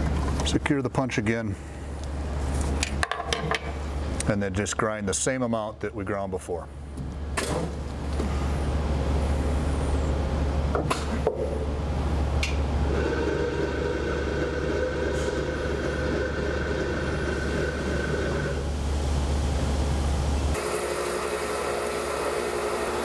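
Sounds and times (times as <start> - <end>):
low motor hum: 6.9 - 23.0
high grinding whine: 12.8 - 19.0, 20.5 - 23.0.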